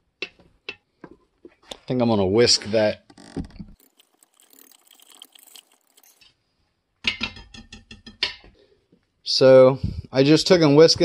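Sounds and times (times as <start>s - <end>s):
whisk clicking and scraping in pot: 3.8s - 6.2s.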